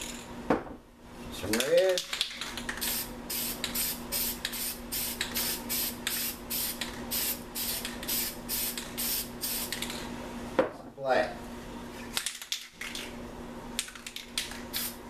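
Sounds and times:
spray can hissing bursts: 2.8 - 9.8, 14.7 - 15.0.

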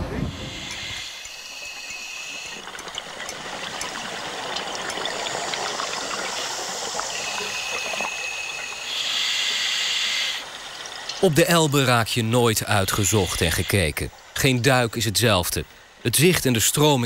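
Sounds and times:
water trickling and bubbling: 0.0 - 17.0
rushing hiss: 0.2 - 2.7, 5.3 - 10.7.

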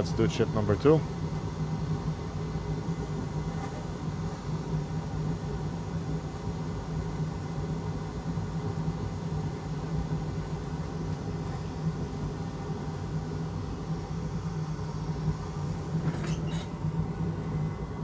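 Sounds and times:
equipment droning: 0.0 - 18.0.

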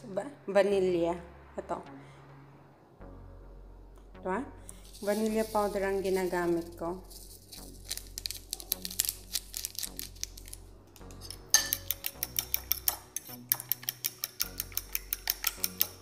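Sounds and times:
fork clinking against ceramic bowl: 11.2 - 16.0.

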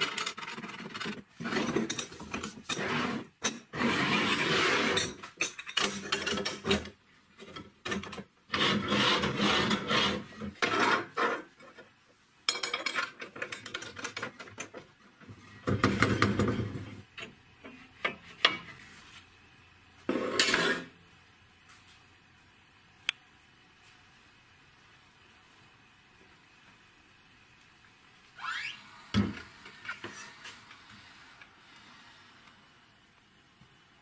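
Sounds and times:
steel parts scraping together: 20.1 - 20.9.

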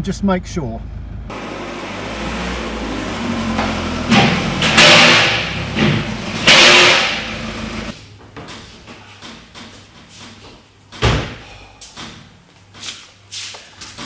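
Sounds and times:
diesel car engine running: 0.0 - 8.0.

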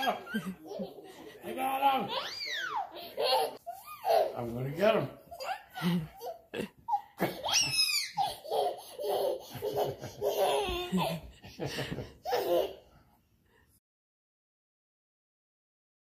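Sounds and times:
child laughing: 0.0 - 1.1, 2.1 - 4.4, 5.4 - 12.8
child squealing: 2.1 - 3.0.

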